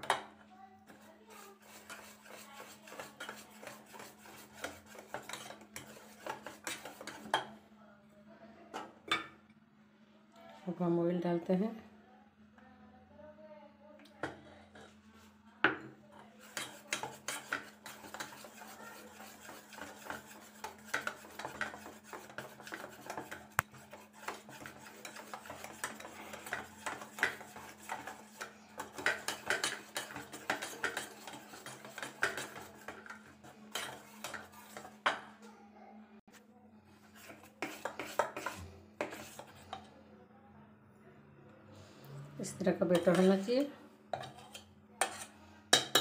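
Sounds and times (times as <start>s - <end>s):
spoon scraping bowl: 0.9s - 7.5s, 16.4s - 35.4s, 37.0s - 40.0s, 42.4s - 46.0s
whisk clinking in steel bowl: 1.3s - 7.5s, 16.4s - 35.2s, 37.2s - 39.9s, 42.9s - 43.5s.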